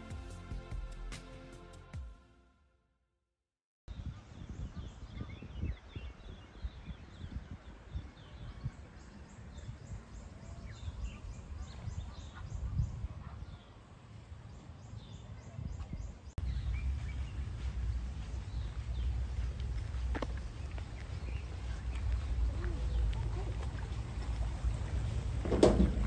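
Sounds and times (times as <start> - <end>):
birds chirping and calling: 4.0 - 13.8, 14.6 - 25.4
steady low rumble: 16.2 - 26.0.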